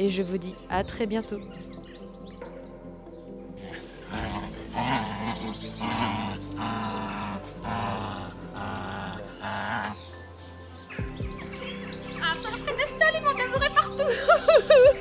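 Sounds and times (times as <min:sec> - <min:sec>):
dog growling: 0:03.6 - 0:10.2.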